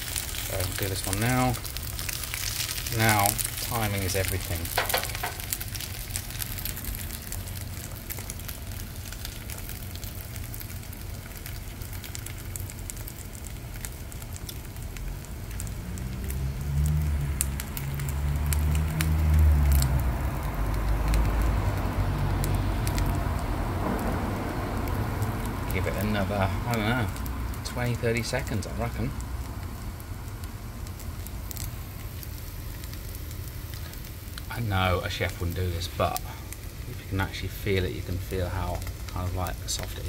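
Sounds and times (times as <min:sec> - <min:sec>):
eggs frying in oil: 0:00.0 - 0:40.0
low rumble: 0:14.4 - 0:27.8.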